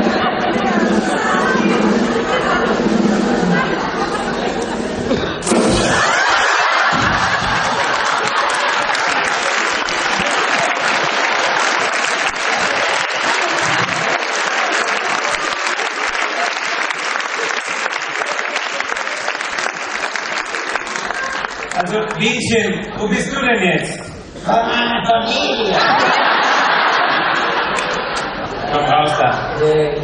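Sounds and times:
audience laughing: 0.0s - 21.8s, 25.3s - 29.6s
audience clapping: 5.9s - 22.4s, 26.0s - 28.4s.

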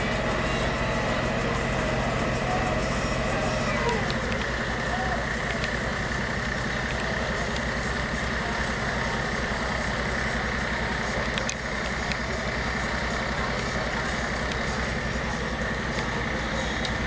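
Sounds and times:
heavy engine idling: 0.0s - 17.0s.

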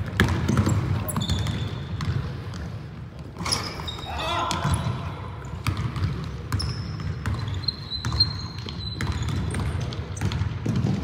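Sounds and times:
basketball bouncing: 0.0s - 3.4s, 5.5s - 11.0s
sneakers squeaking on hardwood: 0.2s - 5.0s, 5.6s - 11.0s.

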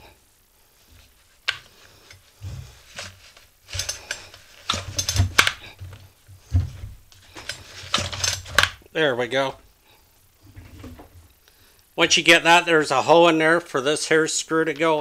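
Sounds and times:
dull handling bumps: 1.0s - 8.8s
plastic parts clicking and rattling: 1.4s - 8.8s.

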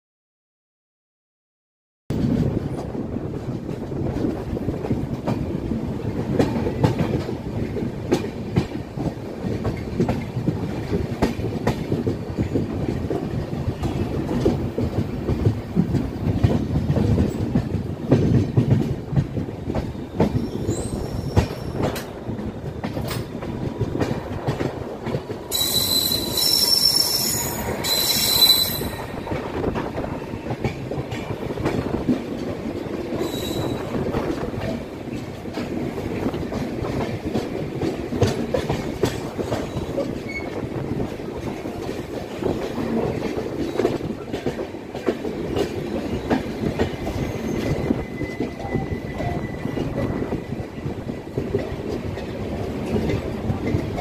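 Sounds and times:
train wheels clicking over joints: 2.2s - 54.0s
high-pitched wheel squeal: 25.5s - 29.2s, 33.2s - 33.9s.

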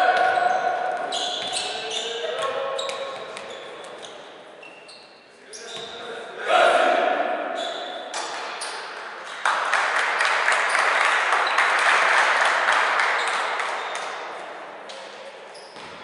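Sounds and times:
applause echoing in a hall: 9.0s - 14.6s.

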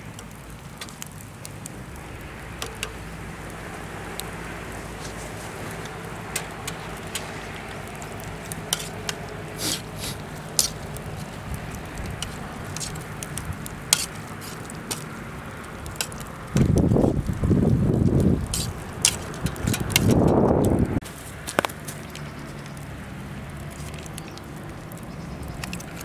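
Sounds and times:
wood fire crackling: 0.0s - 26.0s
sharp pops: 5.0s - 15.2s.

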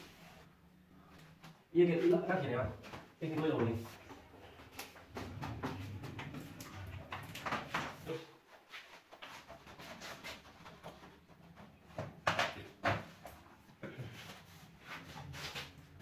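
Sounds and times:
plastic panel rubbing and knocking: 5.0s - 8.1s.

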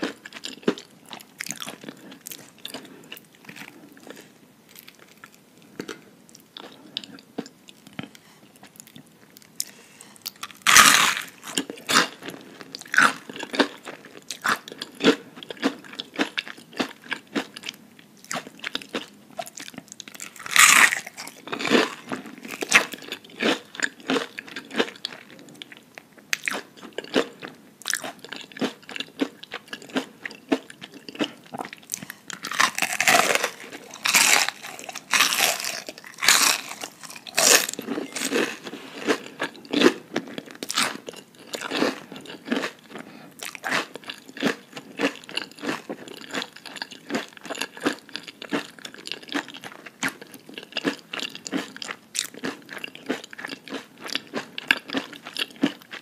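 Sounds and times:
crunchy chewing: 0.0s - 56.0s
crunchy bites into onion rings: 10.3s - 12.1s, 18.3s - 25.0s, 31.9s - 39.9s.

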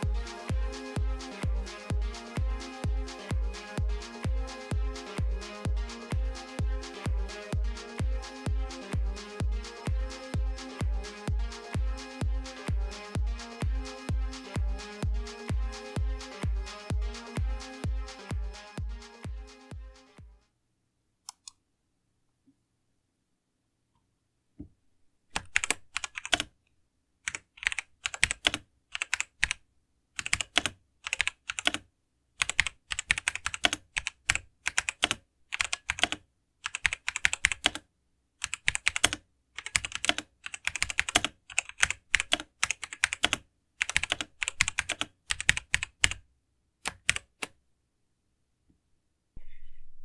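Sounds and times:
mechanical keyboard typing: 25.4s - 26.5s, 27.3s - 29.6s, 30.2s - 31.8s, 32.4s - 37.8s, 38.4s - 46.2s, 46.8s - 47.6s.

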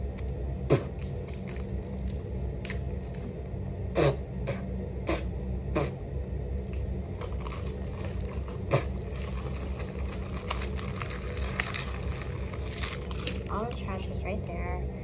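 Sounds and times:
steady low hum: 0.0s - 15.0s
small crackles: 1.0s - 3.3s, 6.6s - 14.2s
packaging scraping and crinkling: 6.6s - 14.1s.

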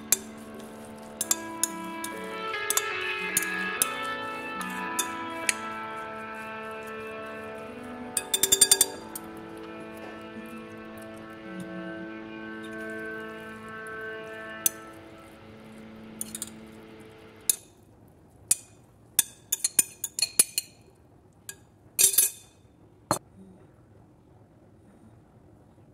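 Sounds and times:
background music: 0.0s - 17.6s.

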